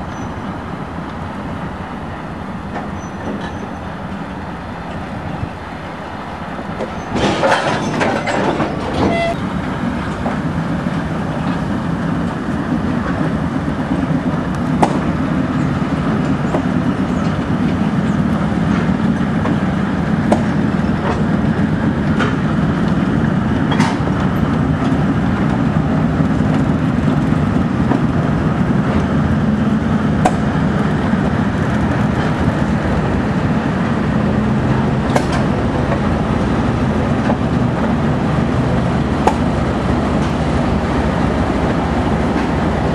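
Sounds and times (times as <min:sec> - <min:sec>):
diesel locomotive engine idling: 0:00.0 - 0:42.9.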